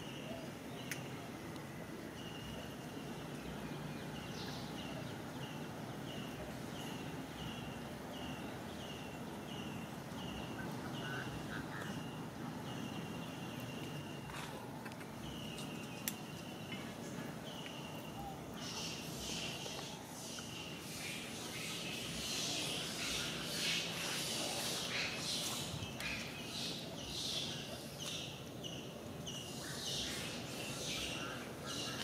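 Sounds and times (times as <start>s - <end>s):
outdoor background hiss: 0.0s - 32.0s.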